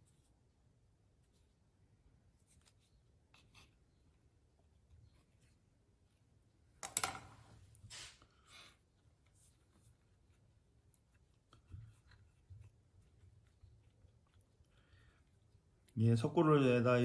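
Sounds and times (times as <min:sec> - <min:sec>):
rustling scrape: 0:07.3 - 0:10.3.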